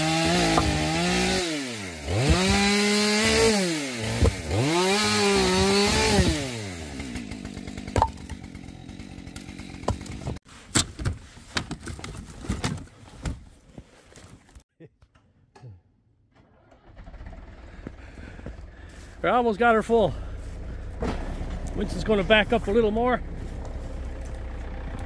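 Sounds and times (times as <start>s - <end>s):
chainsaw revving: 0.0s - 10.4s.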